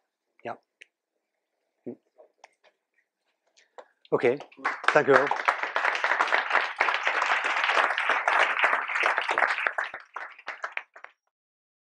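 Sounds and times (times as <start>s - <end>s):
audience applauding: 4.2s - 11.3s.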